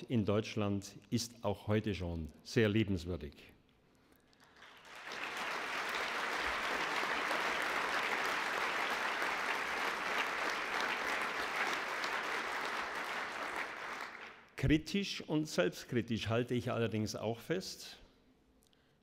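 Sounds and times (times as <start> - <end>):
audience applauding: 4.4 - 14.5.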